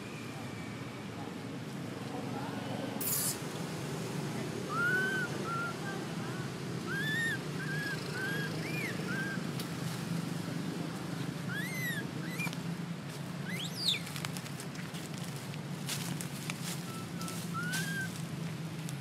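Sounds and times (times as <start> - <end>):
monkey squealing: 3.0 - 3.4, 4.7 - 5.8, 6.8 - 9.4, 11.5 - 12.5, 13.4 - 14.0, 16.9 - 18.1
infant monkey whimpering: 4.7 - 6.0, 6.8 - 9.4, 11.5 - 12.5, 17.5 - 18.1.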